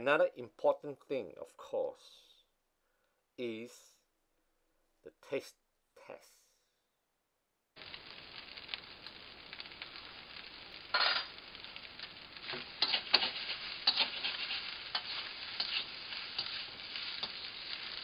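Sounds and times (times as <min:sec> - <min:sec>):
rice sizzling in a wok: 0:07.8 - 0:18.0
metal spatula scraping wok: 0:11.0 - 0:18.0.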